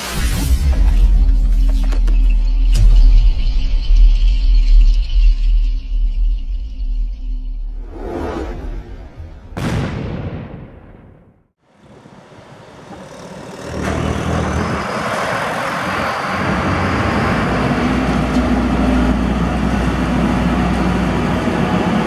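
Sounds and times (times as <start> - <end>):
combine harvester driving: 11.8 - 22.0.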